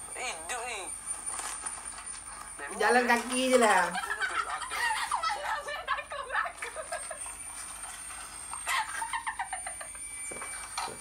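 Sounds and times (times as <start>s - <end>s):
man laughing: 4.0s - 7.2s.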